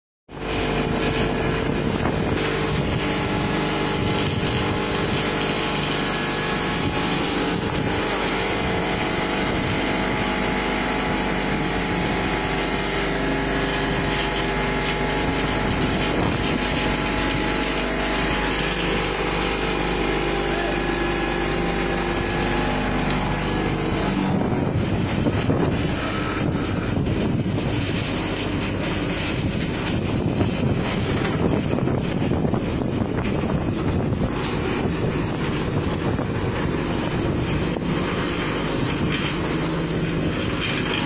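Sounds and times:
machinery droning: 0.3s - 41.0s.

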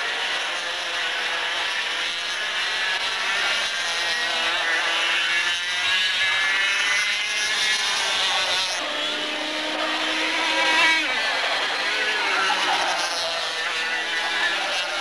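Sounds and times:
racing kart engines at high revs: 0.0s - 15.0s.

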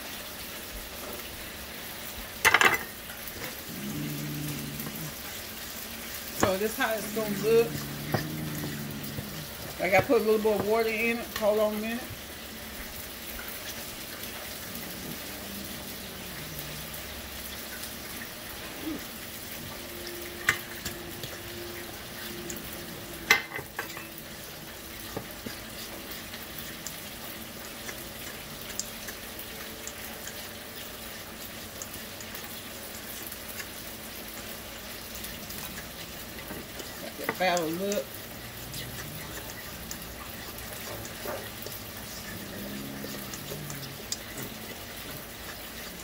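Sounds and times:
deep-frying hiss: 0.0s - 46.0s
fork stirring batter: 6.3s - 11.6s.

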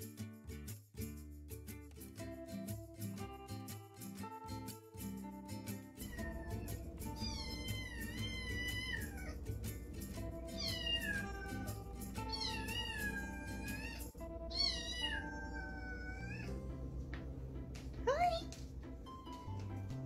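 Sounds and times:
background music: 0.6s - 20.0s
cat meowing: 6.0s - 9.4s, 10.4s - 16.6s.

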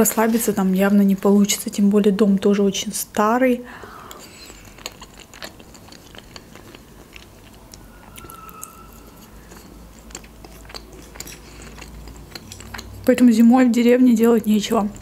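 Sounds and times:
person chewing: 3.9s - 13.1s.

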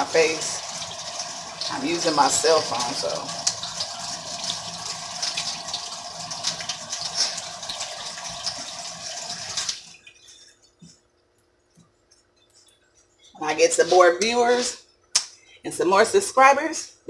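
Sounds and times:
tap water running and splashing: 0.0s - 11.0s
sponge washing knife: 6.4s - 10.9s.

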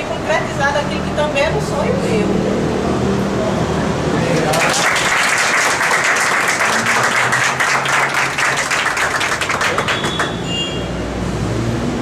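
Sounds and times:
small group applauding: 4.2s - 10.5s.

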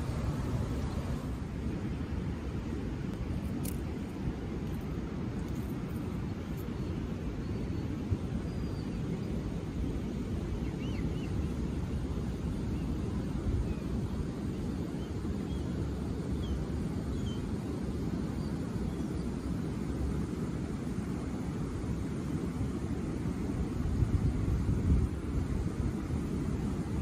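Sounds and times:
wind buffeting microphone: 0.0s - 27.0s
faint bird chirps: 6.7s - 9.4s, 10.6s - 11.4s.

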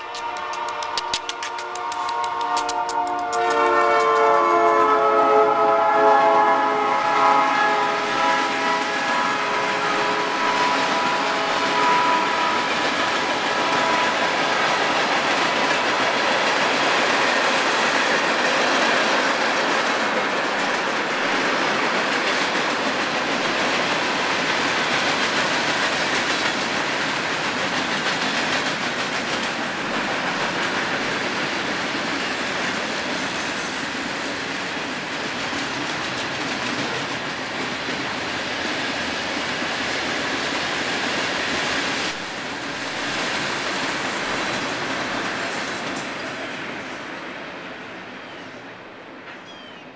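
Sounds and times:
wheel clickety-clack: 0.0s - 5.2s, 10.5s - 46.6s
locomotive horn: 0.0s - 14.5s
freight train rolling on rails: 0.0s - 49.9s.

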